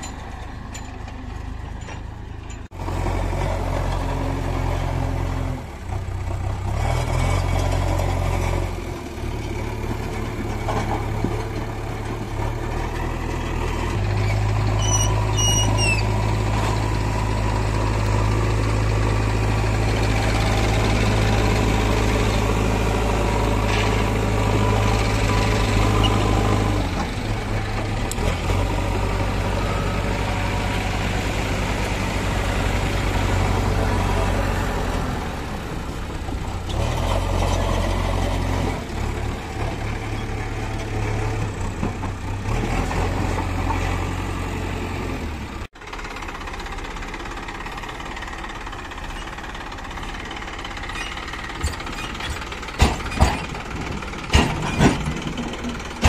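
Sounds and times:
diesel engine running: 0.0 - 56.0
high squeak: 14.2 - 16.2.

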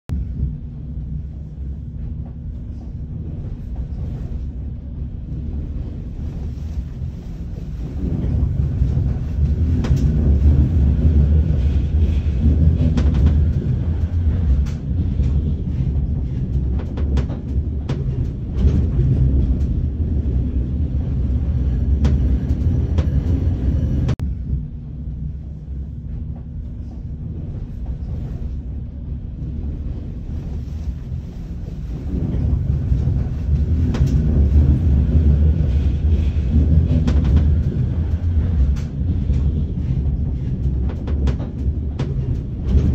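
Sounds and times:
tram running rumble: 0.1 - 42.9.

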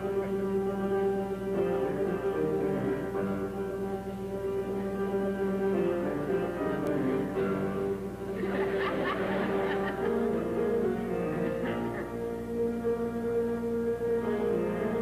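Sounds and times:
instrumental music with held notes: 0.0 - 15.0
audience laughter: 8.3 - 10.6, 11.2 - 12.2.

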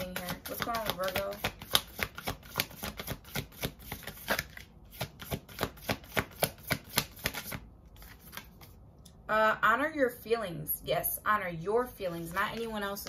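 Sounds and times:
cards being shuffled: 0.0 - 8.8.

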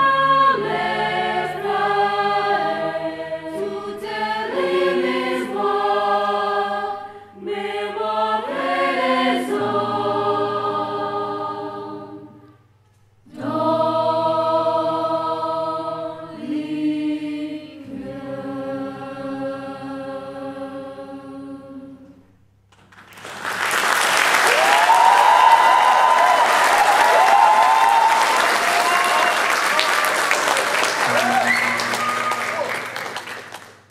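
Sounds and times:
choir singing held chords: 0.0 - 22.2
audience applause: 22.8 - 33.9.

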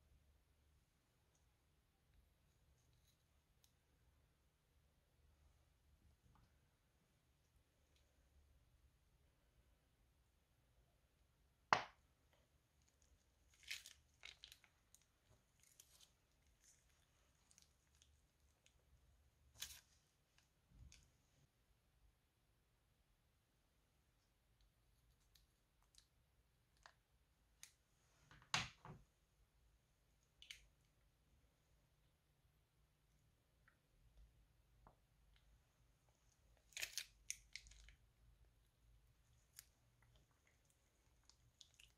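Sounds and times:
slime squelching: 12.4 - 21.0, 35.0 - 41.9.

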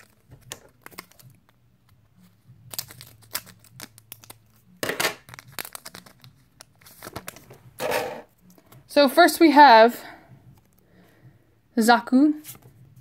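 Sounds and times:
wrapper tearing and crinkling: 0.0 - 1.4, 2.7 - 7.4.

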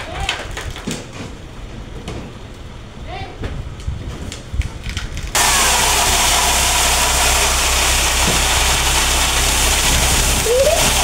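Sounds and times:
gravel pouring out: 5.3 - 11.0
truck engine running: 5.4 - 11.0.

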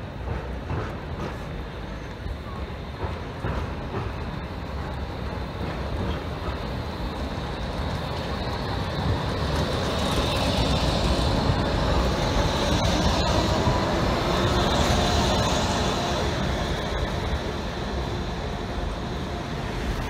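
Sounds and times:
tram running on rails: 0.0 - 20.0.

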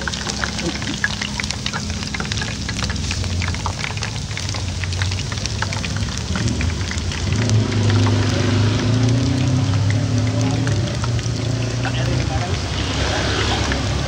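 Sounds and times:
potatoes deep frying in oil: 0.0 - 14.0
passing vehicle engine hum: 6.2 - 14.0.

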